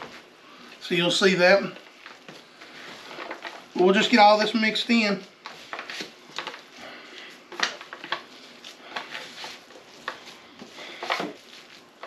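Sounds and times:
hands squishing sausage stuffing: 1.8s - 12.0s
foil pan crinkling and tapping: 5.0s - 12.0s.

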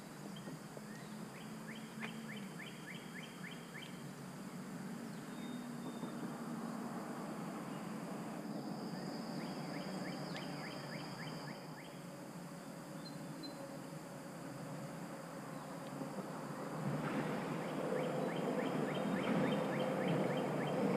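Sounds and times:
soft river hiss: 0.0s - 20.9s.

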